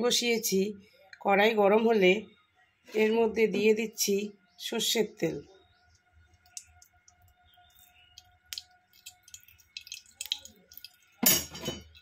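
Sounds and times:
oil pouring in a thin stream: 0:06.5 - 0:11.2.

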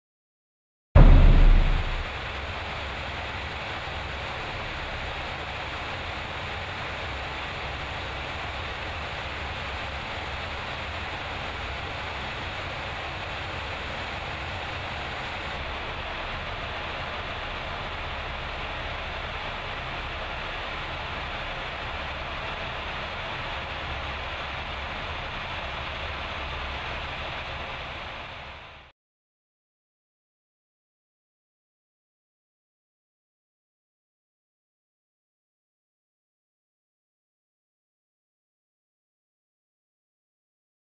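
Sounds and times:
jet engines and airflow in cabin: 0:01.1 - 0:28.9.

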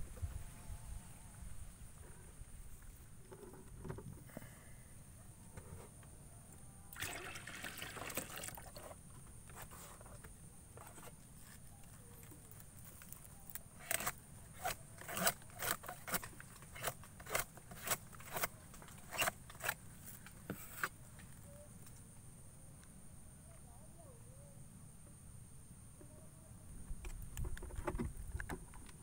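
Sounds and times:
rustling of flower cluster: 0:08.1 - 0:22.0.

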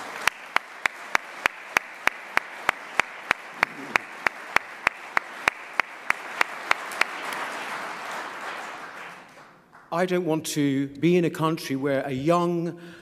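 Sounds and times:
audience applauding: 0:00.0 - 0:09.9
sharp evenly spaced claps: 0:00.0 - 0:09.9.

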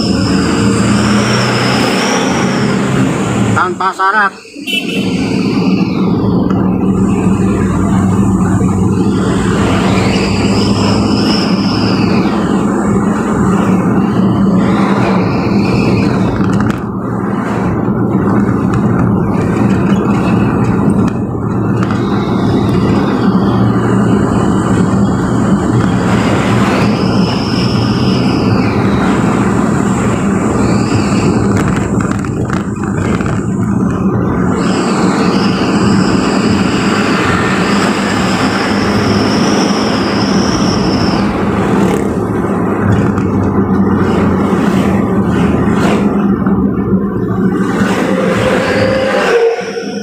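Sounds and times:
faint high whine: 0:00.0 - 0:16.4, 0:21.7 - 0:32.2, 0:34.1 - 0:42.3
vehicle engine drone and road noise: 0:00.0 - 0:50.0.

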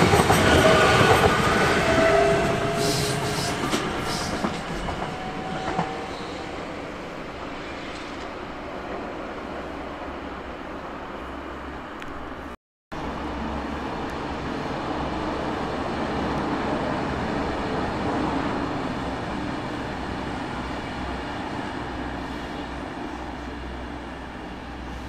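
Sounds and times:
train wheels rumbling on rail: 0:00.0 - 0:09.8.

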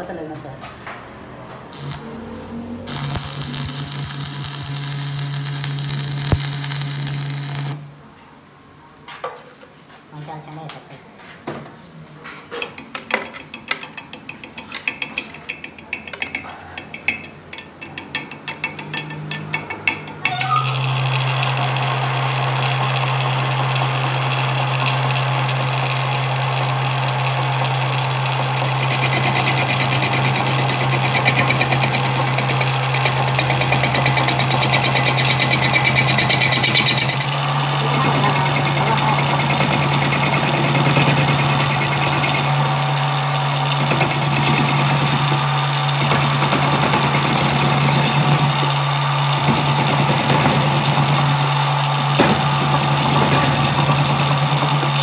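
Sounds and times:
metal lathe humming: 0:01.8 - 0:07.9, 0:18.6 - 0:55.0
steel tool tapping on metal: 0:13.0 - 0:20.4
cutting tool scraping metal: 0:18.5 - 0:21.0, 0:28.6 - 0:55.0.

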